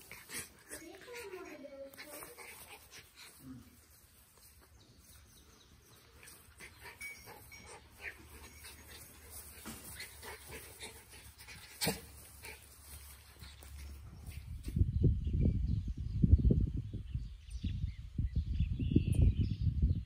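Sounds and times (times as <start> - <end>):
puppies scuffling on grass: 0.0 - 14.9.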